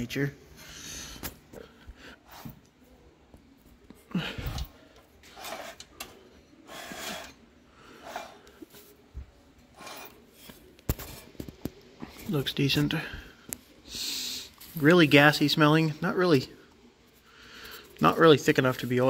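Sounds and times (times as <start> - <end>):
person breathing: 0.5 - 2.5, 4.0 - 5.1, 6.7 - 8.8, 13.0 - 14.6, 17.2 - 18.0.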